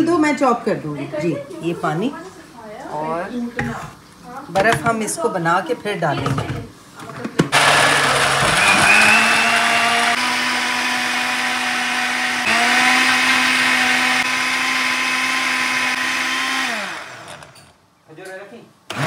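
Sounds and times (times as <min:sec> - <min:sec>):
blender motor whine: 0:07.5 - 0:17.6.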